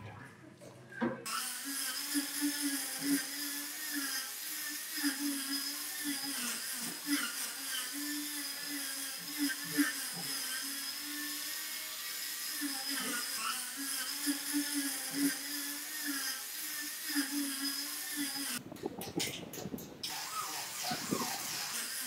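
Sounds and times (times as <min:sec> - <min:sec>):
angle grinder sanding wood: 0:01.3 - 0:18.6, 0:20.0 - 0:22.0.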